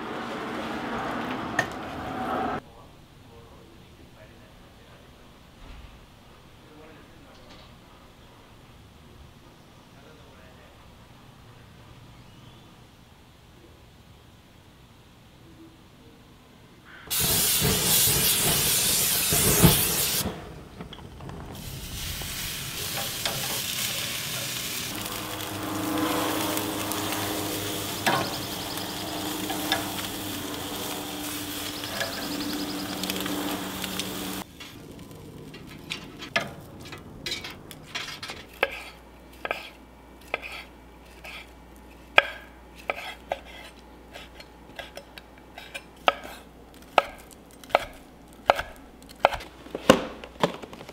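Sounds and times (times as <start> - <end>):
octopus sizzling on grill: 17.1 - 20.2, 21.6 - 35.9
knife chopping on wooden board: 46.0 - 50.0.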